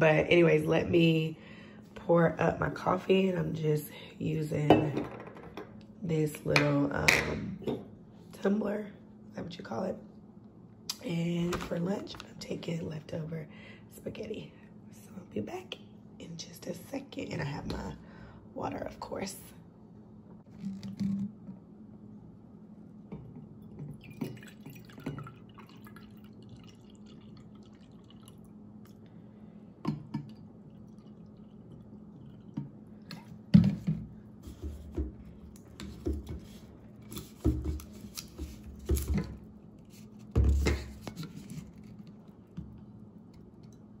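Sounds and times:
clinks and knocks of bottles and cup: 0:04.7 - 0:05.7
liquid pouring and dripping: 0:23.6 - 0:29.1, 0:29.9 - 0:33.3.

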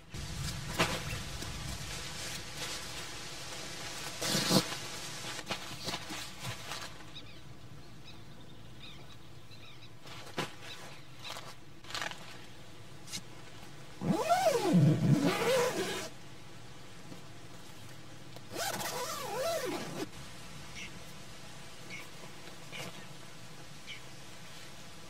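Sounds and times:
rustles and light knocks: 0:00.1 - 0:07.4, 0:09.9 - 0:14.0, 0:21.8 - 0:23.7
tent zipper being drawn: 0:04.0 - 0:06.9, 0:14.0 - 0:16.1, 0:18.5 - 0:20.1.

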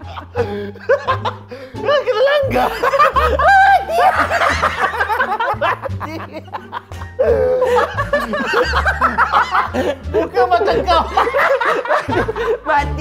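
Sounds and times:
man laughing hard: 0:00.0 - 0:12.7
background music with bass line: 0:00.0 - 0:13.0.

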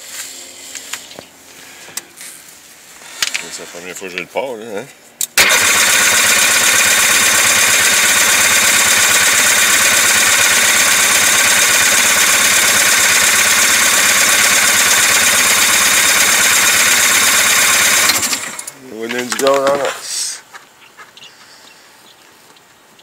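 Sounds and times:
engine cranking on electric starter: 0:05.2 - 0:18.8.

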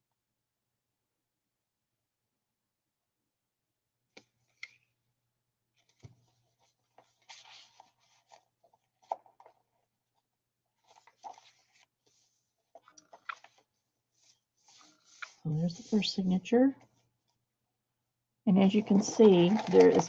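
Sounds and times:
paper rustling and sliding: 0:05.8 - 0:09.6, 0:10.8 - 0:15.4, 0:18.7 - 0:20.0.

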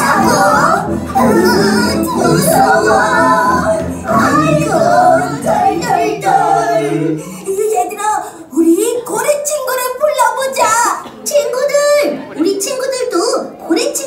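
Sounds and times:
musical accompaniment: 0:00.0 - 0:07.2
person singing children's song: 0:00.0 - 0:07.2.

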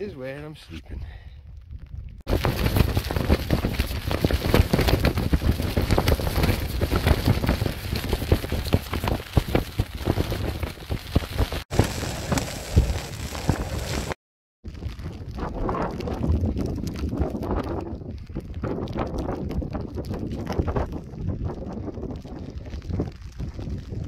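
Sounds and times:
wind rumbling on microphone: 0:00.8 - 0:24.0
rain pattering on fabric: 0:02.2 - 0:24.0.

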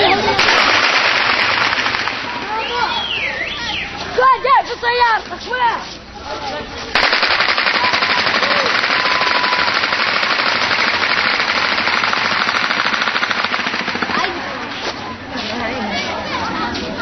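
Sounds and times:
automatic gunfire: 0:00.4 - 0:02.6, 0:07.0 - 0:14.6.

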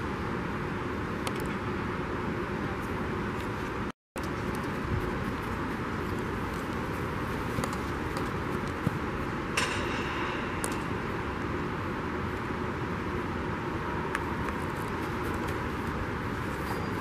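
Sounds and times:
steady rushing noise: 0:01.8 - 0:17.0
sharp click with ringing tail: 0:09.5 - 0:11.4.

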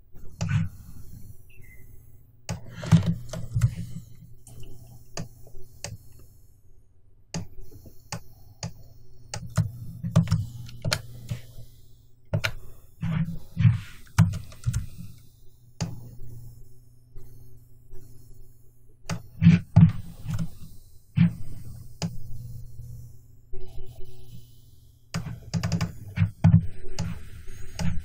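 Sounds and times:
keyboard and mouse clicks: 0:02.5 - 0:06.3, 0:07.3 - 0:11.5, 0:12.3 - 0:12.6, 0:14.0 - 0:15.2, 0:25.1 - 0:28.0.

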